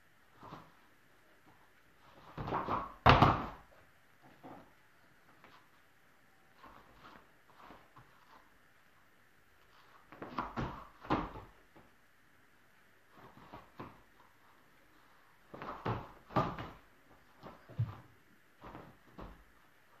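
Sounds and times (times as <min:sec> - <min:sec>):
thuds on inflatable mat: 0:02.2 - 0:03.6, 0:10.1 - 0:11.6, 0:15.5 - 0:16.8.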